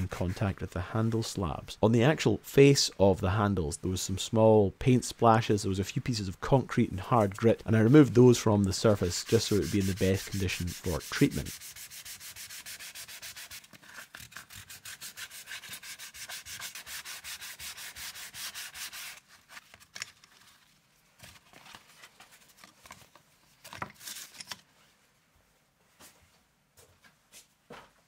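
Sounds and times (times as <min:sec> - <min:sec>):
sanding wood by hand: 0:08.8 - 0:13.7, 0:14.5 - 0:19.2.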